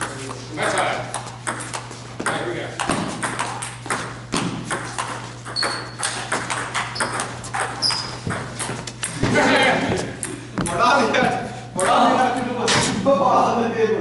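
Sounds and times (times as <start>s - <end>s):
table tennis balls clicking: 0.6s - 9.2s
brief high squeaks: 7.8s - 8.2s.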